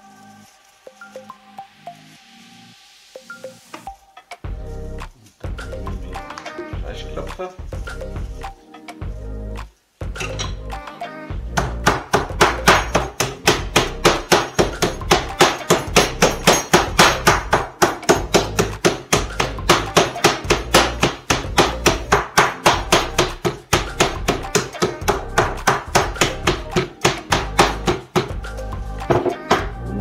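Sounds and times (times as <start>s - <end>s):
meat mallet pounding meat: 11.6s - 28.5s.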